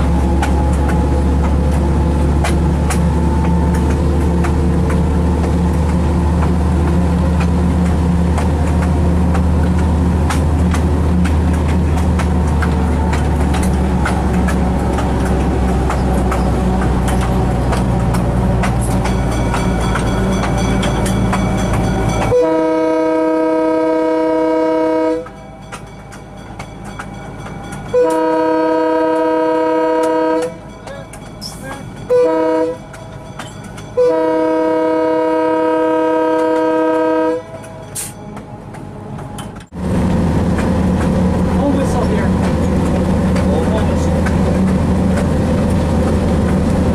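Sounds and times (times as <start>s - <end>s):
wheels clicking on rails: 0.0s - 22.5s, 25.1s - 34.7s, 36.3s - 46.9s
diesel locomotive engine hum: 0.0s - 46.9s
locomotive air horn blasts: 22.3s - 25.3s, 27.9s - 30.6s, 32.1s - 32.8s, 34.0s - 38.1s.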